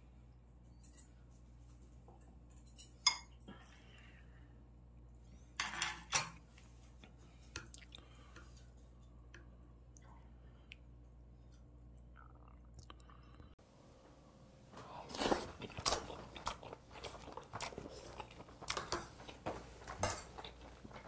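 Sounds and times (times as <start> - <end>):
utensils clinking against ceramic bowl: 2.6 - 3.4, 19.9 - 21.0.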